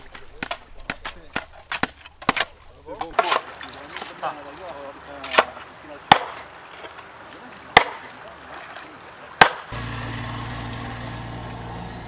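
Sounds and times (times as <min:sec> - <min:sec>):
sledgehammer striking wooden stake: 0:00.0 - 0:02.5, 0:06.1 - 0:06.5, 0:07.8 - 0:08.1, 0:09.4 - 0:10.9
mini excavator engine humming: 0:09.8 - 0:12.0.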